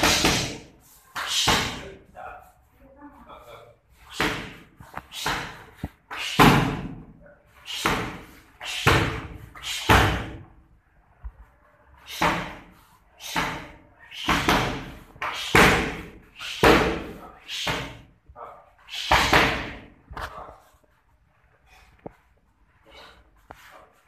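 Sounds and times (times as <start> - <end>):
punches and kicks on strike pads: 6.3 - 7.0, 14.3 - 18.0.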